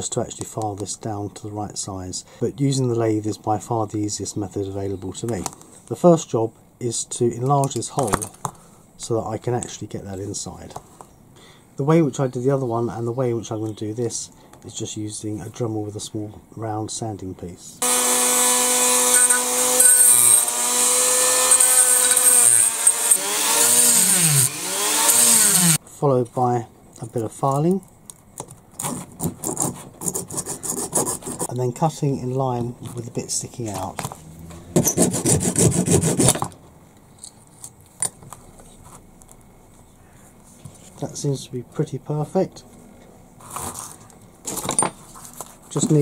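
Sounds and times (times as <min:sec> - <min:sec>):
hand saw cutting plastic: 0:17.8 - 0:25.8, 0:28.8 - 0:31.5, 0:34.8 - 0:36.5
rotary tool motor whine: 0:17.8 - 0:25.8.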